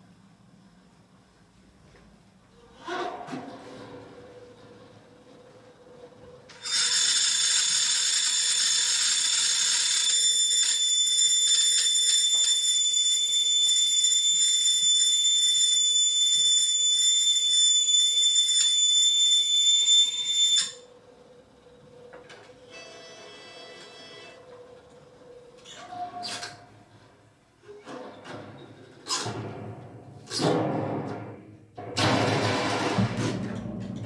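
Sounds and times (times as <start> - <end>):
hurdy-gurdy shrill drone: 9.9 - 20.9, 22.7 - 24.4.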